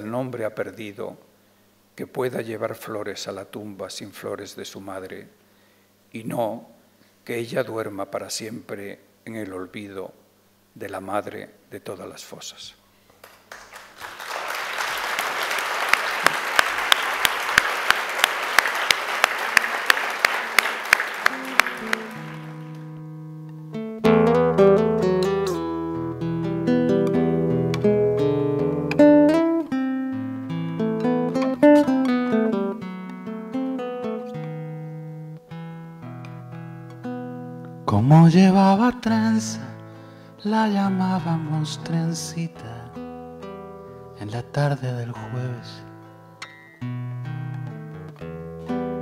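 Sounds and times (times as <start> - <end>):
audience applause: 13.2 - 22.8
solo acoustic guitar: 21.3 - 38.0, 41.4 - 44.2, 45.3 - 49.0.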